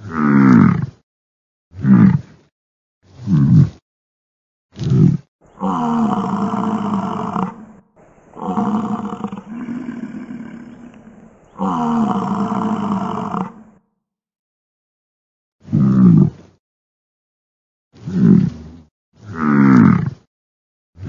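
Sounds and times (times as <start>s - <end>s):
bison grunt: 0.0s - 1.0s, 1.8s - 2.3s, 3.2s - 3.8s, 4.8s - 13.8s, 15.6s - 16.4s, 18.0s - 18.6s, 19.3s - 20.2s
bison bellowing: 5.5s - 13.8s.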